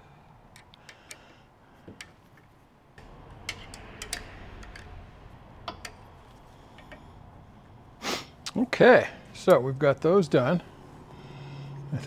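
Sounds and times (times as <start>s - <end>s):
small metallic clicks: 0.5s - 1.4s
low hum: 3.0s - 9.4s.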